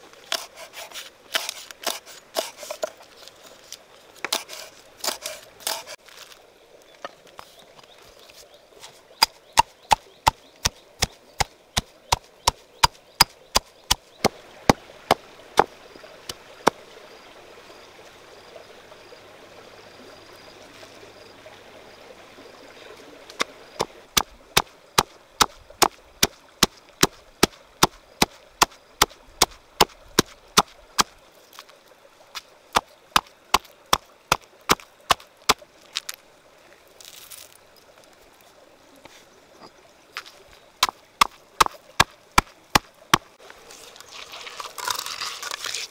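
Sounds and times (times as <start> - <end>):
salt being poured: 36.9 - 37.8, 43.6 - 45.9.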